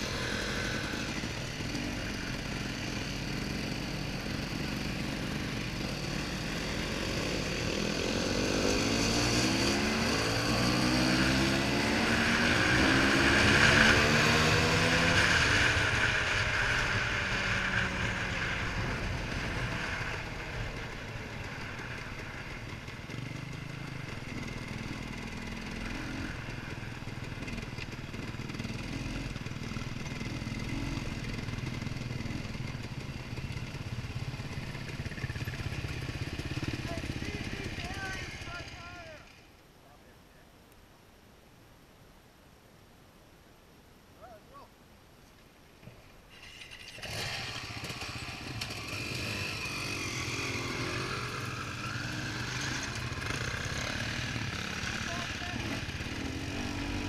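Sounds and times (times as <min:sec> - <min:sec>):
dirt bike engine accelerating: 0:00.0 - 0:39.4, 0:46.3 - 0:57.0.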